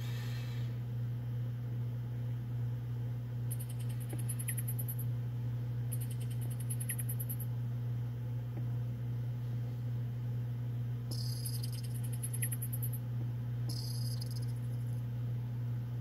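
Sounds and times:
steady low hum: 0.0 - 16.0
cricket chirping: 3.5 - 5.0, 11.1 - 13.0, 13.7 - 14.7.

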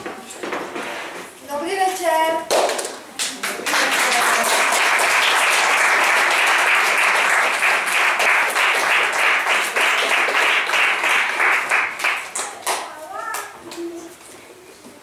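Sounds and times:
audience applauding: 3.4 - 12.8.

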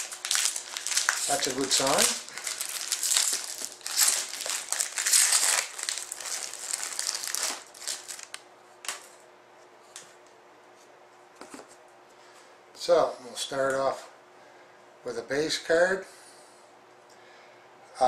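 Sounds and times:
card pack wrapper crinkling: 0.0 - 9.1.

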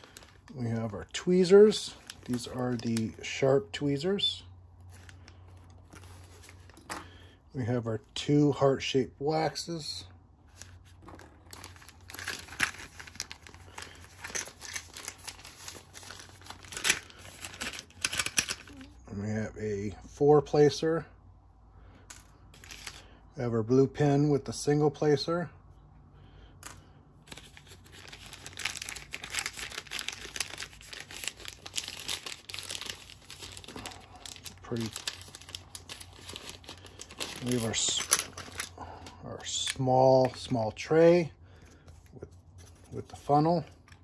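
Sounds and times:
packaging crinkling: 0.0 - 0.6, 1.6 - 3.2, 10.5 - 18.9, 27.3 - 39.1.

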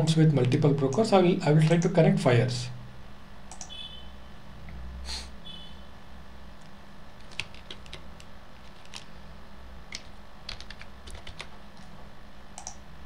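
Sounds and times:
low steady hum: 0.0 - 13.0
keyboard typing: 3.5 - 3.8, 7.2 - 9.1, 9.9 - 11.9, 12.6 - 12.8.

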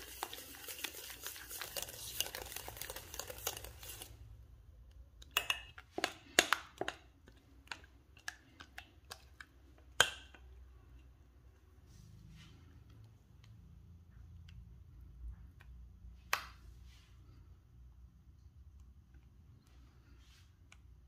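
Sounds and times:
stirring in a bowl: 0.0 - 12.0.

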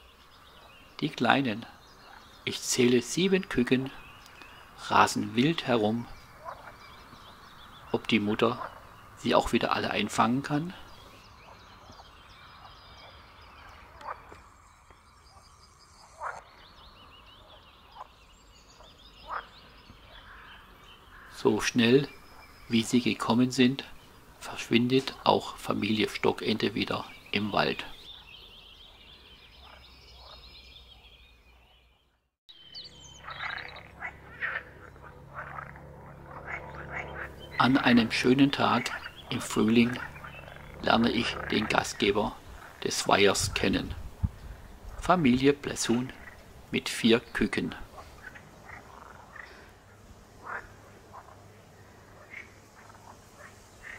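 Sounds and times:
frogs croaking: 0.0 - 31.9, 32.5 - 53.9
high chirping birdsong: 0.0 - 53.9
ducklings peeping: 36.3 - 49.7.

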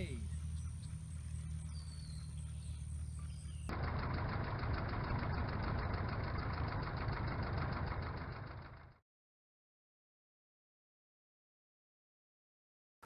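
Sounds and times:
propeller plane engine: 0.0 - 9.0.

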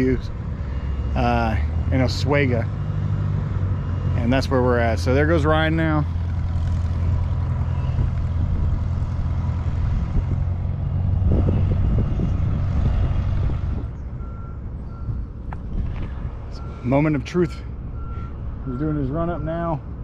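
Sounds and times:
small airplane engine running: 5.2 - 16.7.

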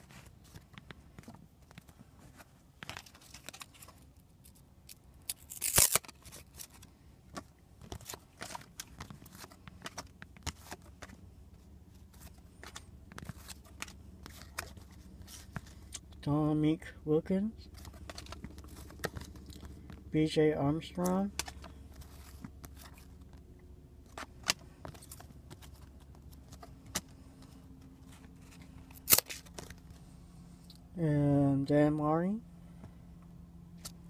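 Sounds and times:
cards flipping and clicking: 0.0 - 16.2, 17.7 - 20.0, 21.0 - 30.0
cards brushing scrape: 5.6 - 16.0.

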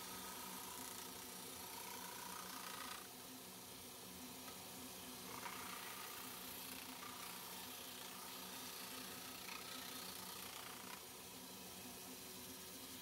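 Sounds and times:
disc sander running: 0.0 - 13.0
wood sanded on disc: 5.3 - 11.0.

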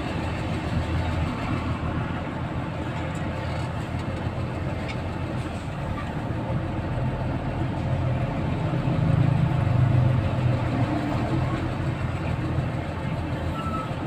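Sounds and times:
traffic engine hum: 0.0 - 14.0.

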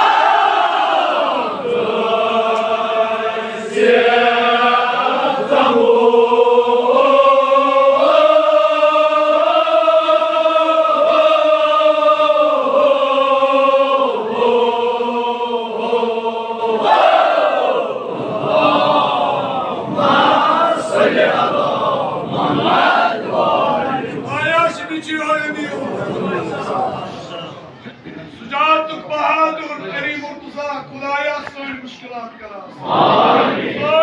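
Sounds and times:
men chanting in unison: 0.0 - 24.9.

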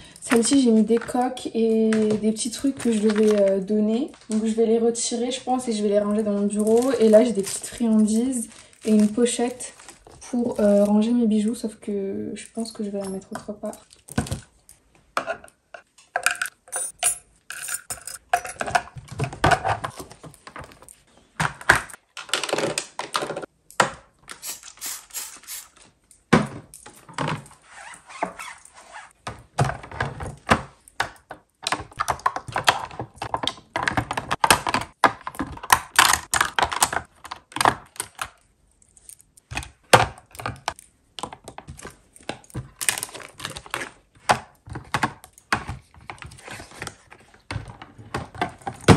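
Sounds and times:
plastic items clicking in drawer: 0.2 - 4.6, 6.0 - 11.6, 17.9 - 24.0, 29.2 - 38.4, 39.4 - 48.9.

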